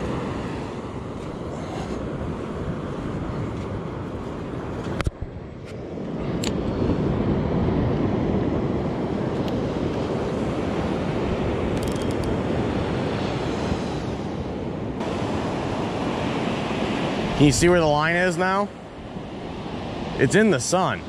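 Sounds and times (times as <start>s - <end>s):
ocean surf on beach: 0.0s - 21.0s
wind rushing over microphone: 0.0s - 21.0s
sharp click: 11.7s - 12.4s.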